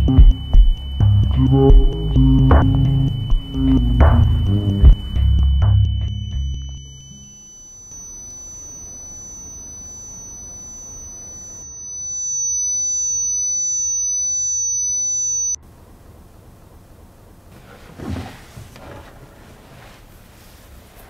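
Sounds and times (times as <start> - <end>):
faint low rumble: 0.0 - 7.3
high-pitched electronic sine tone: 0.0 - 15.6
lower electronic tone: 0.0 - 15.6.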